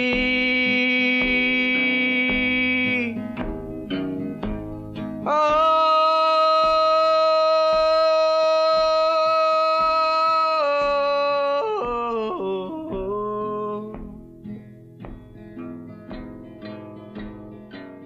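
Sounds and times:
plucked acoustic guitar: 0.0s - 18.0s
person singing long high note: 5.3s - 14.0s.

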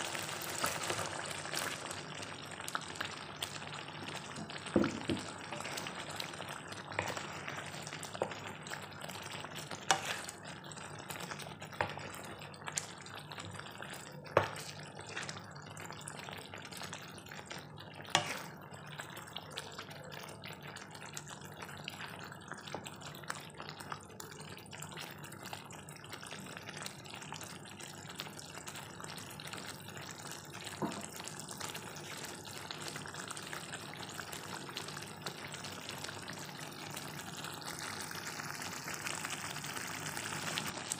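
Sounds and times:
sauce simmering and sizzling: 0.0s - 40.9s
wooden spatula knocking pan: 4.7s - 5.3s.

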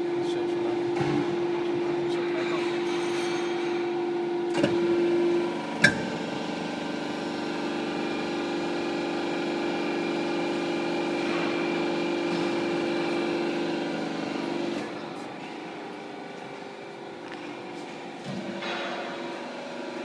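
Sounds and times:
hydraulic pump humming: 0.0s - 20.0s.

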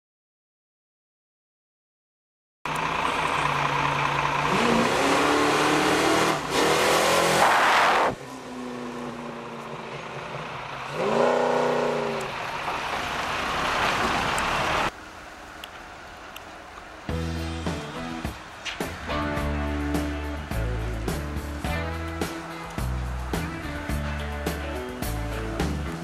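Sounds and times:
car engine revving: 2.7s - 15.0s.

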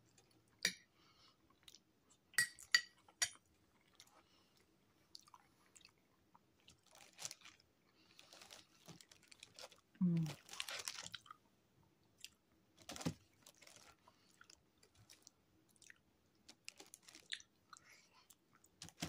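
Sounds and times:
close-miked chewing: 3.7s - 11.4s, 12.1s - 12.4s, 13.5s - 18.8s.

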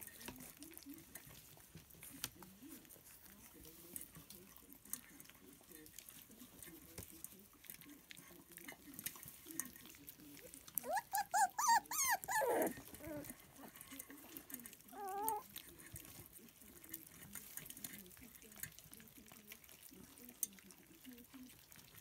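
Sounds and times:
puppies eating from steel bowl: 0.0s - 22.0s
puppy whining: 10.4s - 15.6s
puppies yelping: 10.8s - 13.3s, 14.9s - 15.4s.

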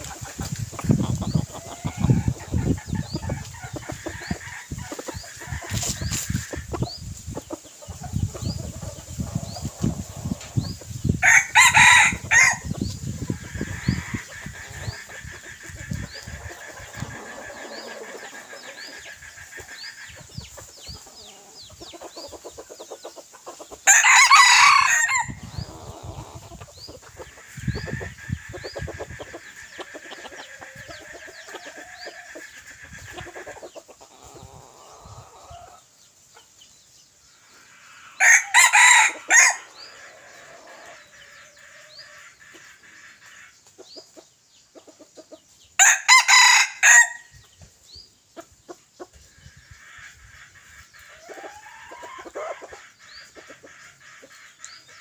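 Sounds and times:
rooster crowing: 11.2s - 12.7s, 23.9s - 25.5s, 38.2s - 39.8s, 45.8s - 47.3s.

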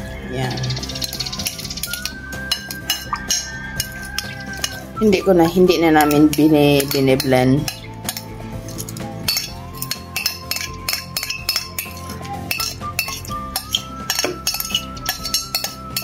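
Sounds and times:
background music with steady beat: 0.0s - 16.0s
ladle stirring thick mixture: 0.6s - 5.1s, 5.9s - 16.0s
ladle clinking against pot: 9.2s - 16.0s.

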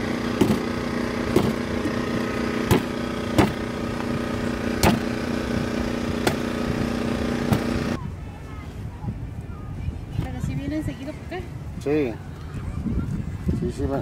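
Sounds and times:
steady engine hum: 0.0s - 14.0s
knife chopping coconut husk: 4.8s - 5.1s.

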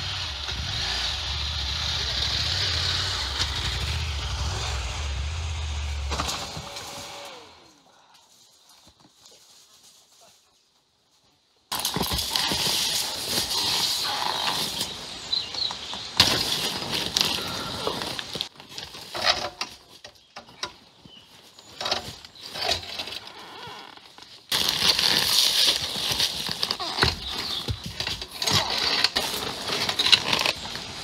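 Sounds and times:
footsteps on dry leaves and twigs: 11.7s - 19.2s, 24.0s - 31.0s.

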